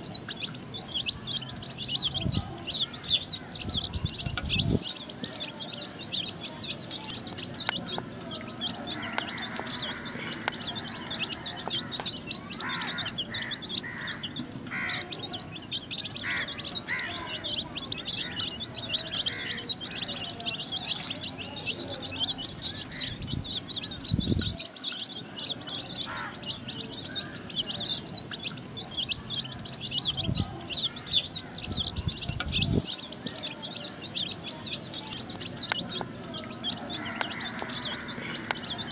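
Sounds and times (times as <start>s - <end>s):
chicks peeping: 0.0s - 38.9s.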